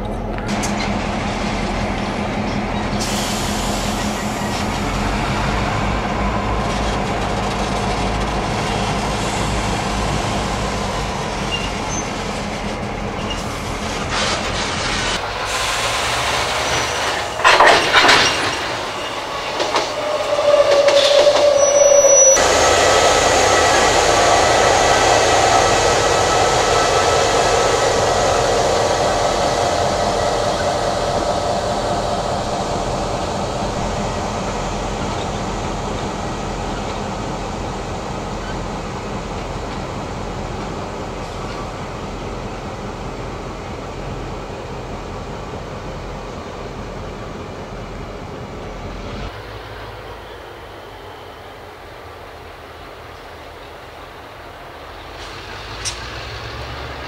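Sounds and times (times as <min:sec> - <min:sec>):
diesel locomotive engine running: 0:00.0 - 0:57.0
train wagons rumbling on rails: 0:00.0 - 0:57.0
wheel squeal: 0:11.4 - 0:12.3, 0:16.0 - 0:22.8
loud wagon clanks: 0:16.0 - 0:20.0.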